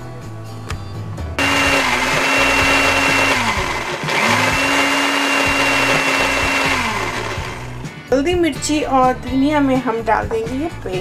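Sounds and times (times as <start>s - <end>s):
blender motor whining: 1.4s - 7.9s.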